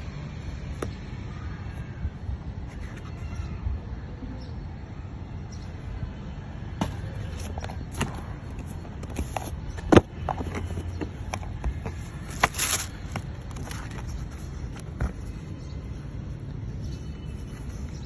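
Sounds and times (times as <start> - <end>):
plastic packaging rustling: 12.3 - 14.4.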